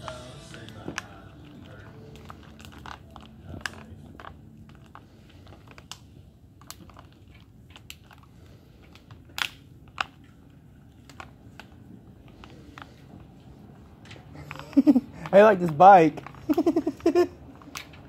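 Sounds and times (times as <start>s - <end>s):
bicycle rolling on concrete: 11.3s - 18.0s.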